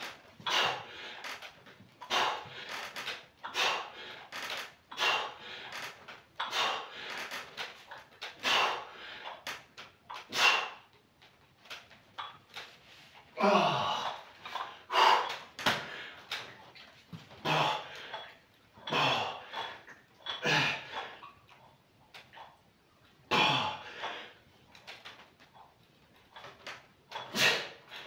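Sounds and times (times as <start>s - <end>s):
man exhaling and grunting: 13.4s - 14.3s, 17.4s - 18.1s, 18.9s - 19.7s, 20.4s - 21.0s, 23.3s - 24.0s.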